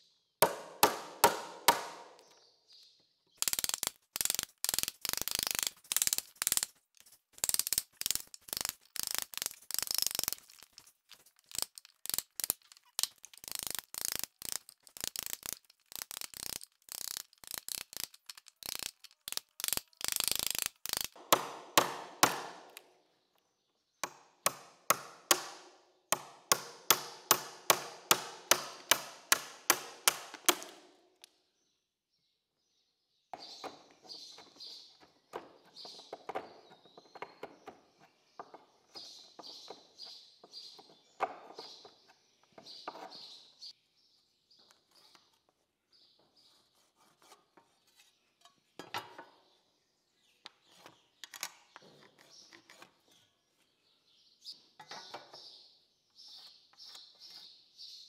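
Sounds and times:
hammer striking chisel: 0.4 - 2.3, 21.2 - 22.8, 24.0 - 30.9.

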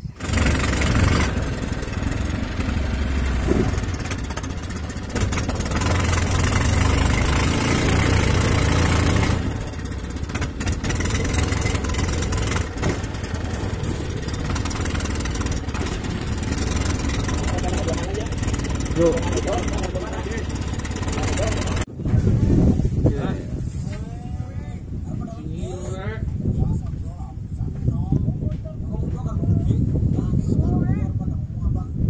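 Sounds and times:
small boat engine running: 0.0 - 21.9.

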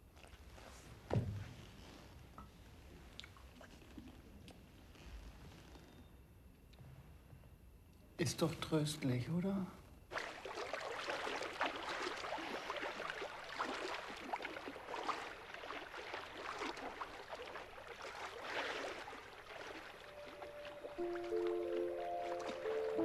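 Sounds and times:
water splashing and lapping: 10.1 - 23.0.

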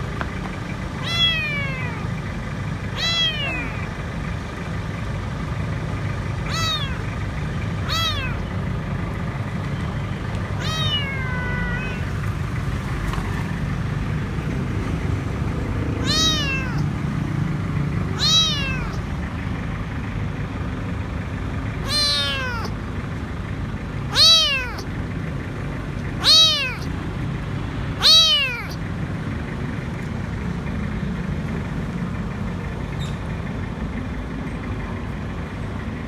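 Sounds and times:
kitten meowing: 1.0 - 2.1, 2.9 - 3.9, 6.5 - 7.2, 7.8 - 8.5, 10.6 - 12.2, 16.0 - 16.9, 18.2 - 19.0, 21.8 - 22.8, 24.1 - 24.9, 26.2 - 26.9, 28.0 - 28.8.

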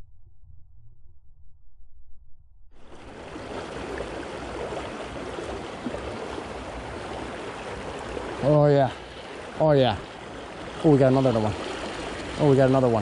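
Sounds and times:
creek flowing over rocks: 2.9 - 13.0.

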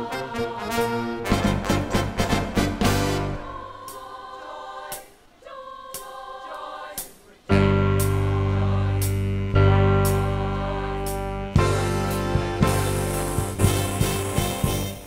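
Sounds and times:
full accompaniment with deep bass: 0.0 - 4.0, 7.5 - 15.0
school choir singing: 0.0 - 15.0.

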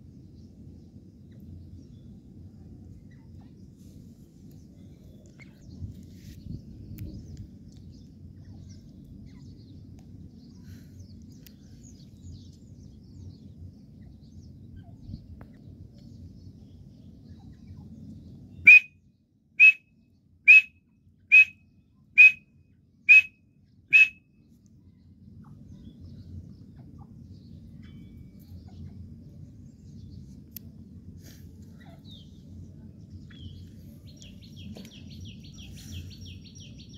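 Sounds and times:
faint low rumble: 0.0 - 19.5, 20.1 - 36.9
bird whistled calls: 18.6 - 19.0, 19.6 - 19.8, 20.5 - 20.7, 21.3 - 21.6, 22.2 - 22.4, 23.1 - 24.2.

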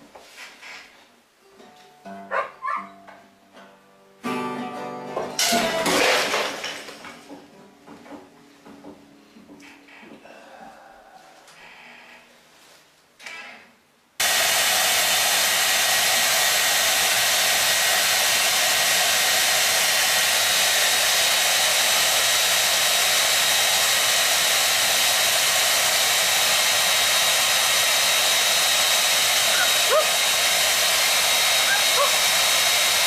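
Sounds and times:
electric appliance airflow rushing: 14.2 - 33.0.

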